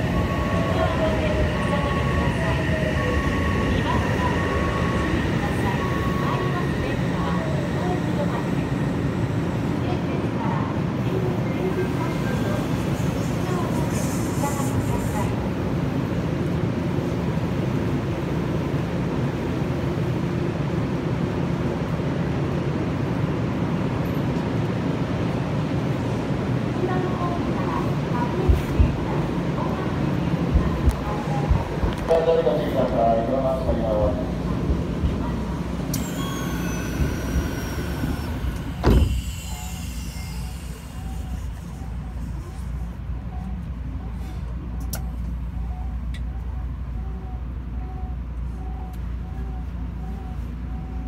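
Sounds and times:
electric train rumbling: 0.0s - 51.0s
train doors shutting thump: 35.9s - 39.6s
door mechanism whine: 35.9s - 41.5s.

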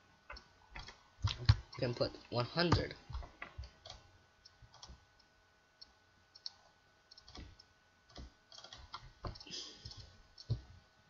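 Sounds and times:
mouse and keyboard clicks: 3.2s - 5.0s, 5.8s - 10.7s.

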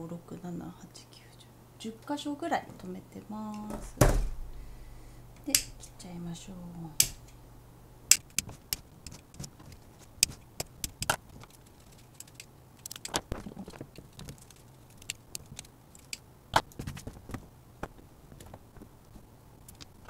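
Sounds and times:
scissors snipping plastic: 8.1s - 17.0s.

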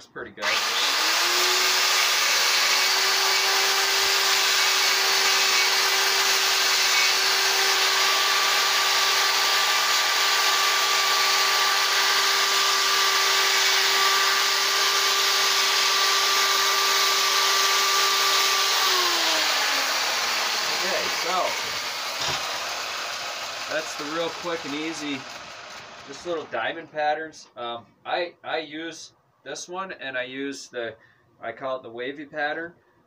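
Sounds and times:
electric chainsaw cutting wood: 0.4s - 26.5s.

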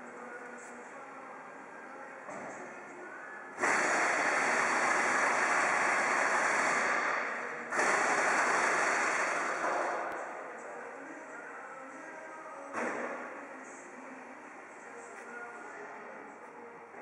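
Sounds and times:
air blow gun hissing: 3.6s - 6.8s.

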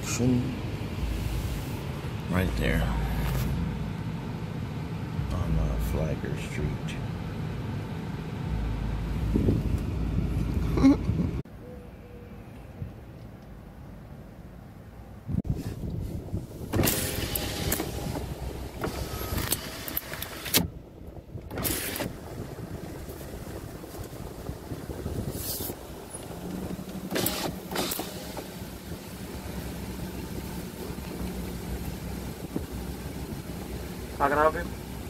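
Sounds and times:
car interior engine noise: 0.0s - 35.0s
power window lowering: 16.6s - 20.7s, 21.5s - 22.3s, 26.5s - 28.7s.

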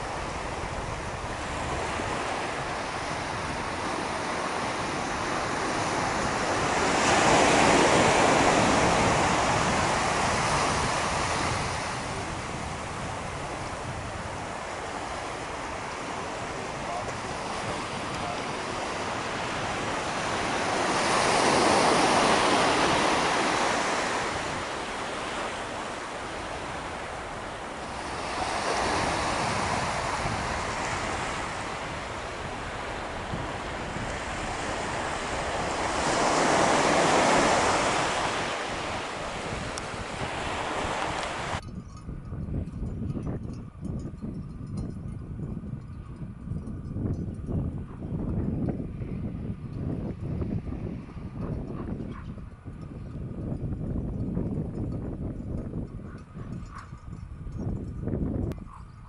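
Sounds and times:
small waves breaking on shore: 0.0s - 41.6s
wind rumbling on microphone: 0.0s - 59.0s.

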